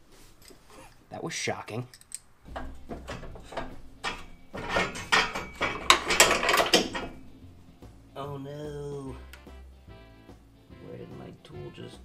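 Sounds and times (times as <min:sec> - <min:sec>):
metal wrench clinks and knocks: 0:01.9 - 0:07.5.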